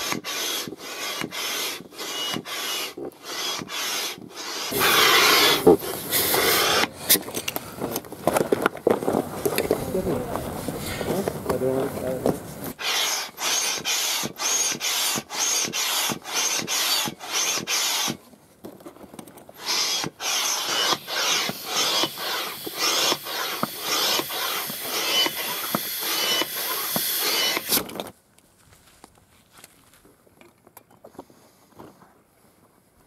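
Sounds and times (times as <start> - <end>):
hand air pump strokes: 0.0 - 8.5, 9.4 - 18.2, 19.6 - 28.0.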